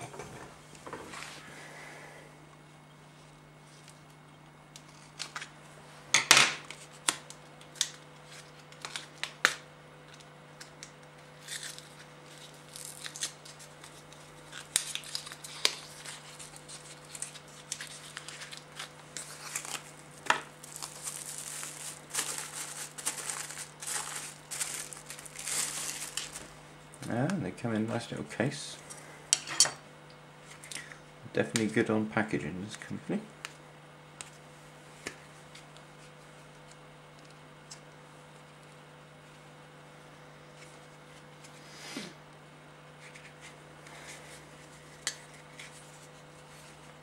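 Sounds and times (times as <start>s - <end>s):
plastic wrapping crinkling: 11.4s - 26.6s.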